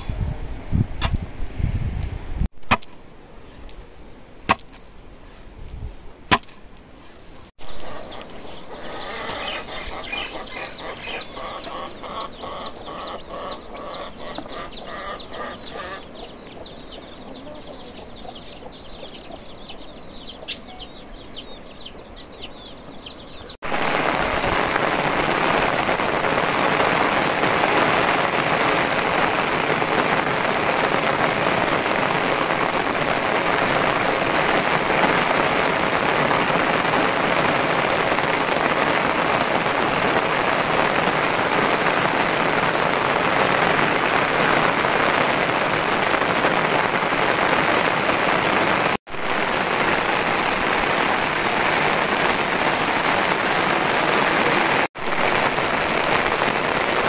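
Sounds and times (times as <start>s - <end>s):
chicks cheeping: 7.6s - 23.6s
chickens clucking: 7.7s - 21.0s
loud steady hiss: 23.6s - 57.0s.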